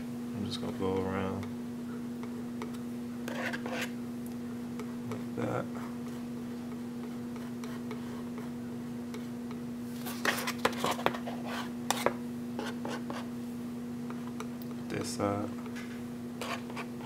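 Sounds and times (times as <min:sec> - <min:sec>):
steady low hum: 0:00.0 - 0:17.0
palette knife scraping and tapping: 0:02.6 - 0:03.9, 0:10.2 - 0:13.3, 0:16.4 - 0:17.0.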